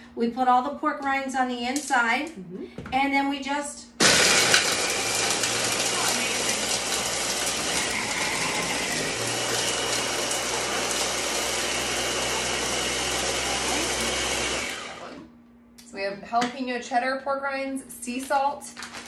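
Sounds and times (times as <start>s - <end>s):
food chopper grinding: 4.0s - 15.2s.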